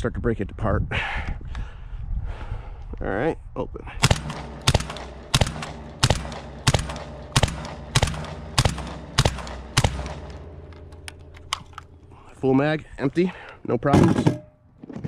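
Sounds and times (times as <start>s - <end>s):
suppressed shotgun shots: 4.0s - 12.1s.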